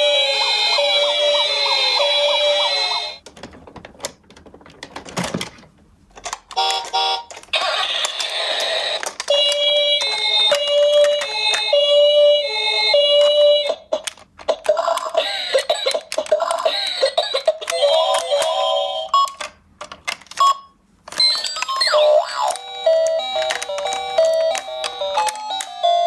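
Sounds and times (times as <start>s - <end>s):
toy electronic beeps and tunes: 6.5s - 19.6s, 20.3s - 26.0s.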